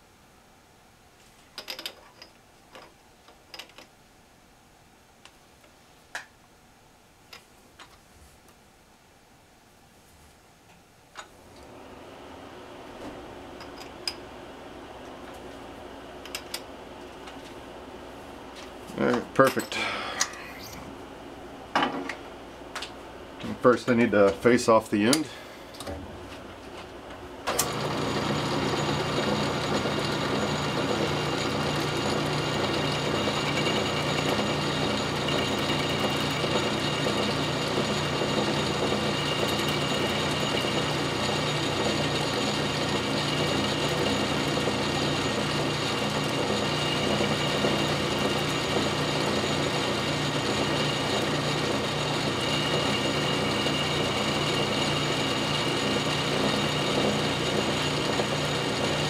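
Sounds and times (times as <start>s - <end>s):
lathe running: 27.5s - 59.0s
lathe tool facing metal part: 27.6s - 59.0s.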